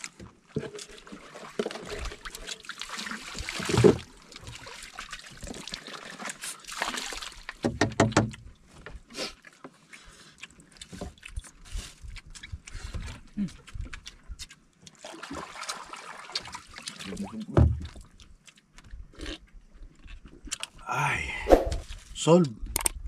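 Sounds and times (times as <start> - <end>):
water pouring from plastic bottle: 0.5 - 7.6.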